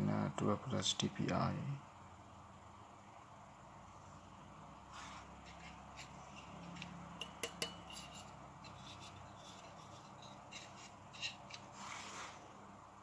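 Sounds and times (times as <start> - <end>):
metal plate clicks and clinks: 6.0 - 11.7.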